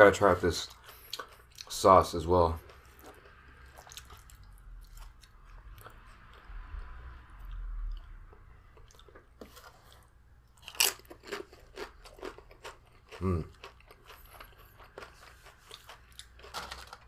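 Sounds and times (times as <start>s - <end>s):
tortilla chip crunch: 8.8s - 17.0s.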